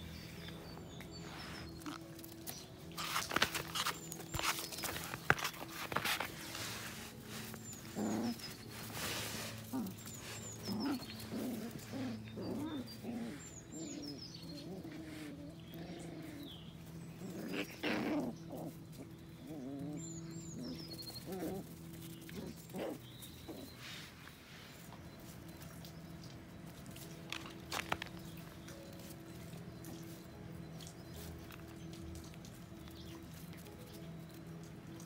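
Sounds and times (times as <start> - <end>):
puppies whining and yelping: 0.1 - 24.2.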